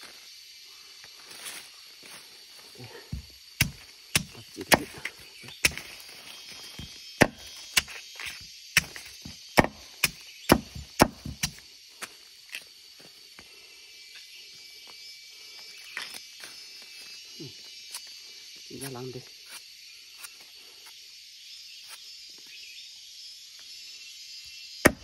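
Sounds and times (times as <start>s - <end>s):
knife chopping bamboo shoot: 3.1s - 6.0s, 6.6s - 11.6s.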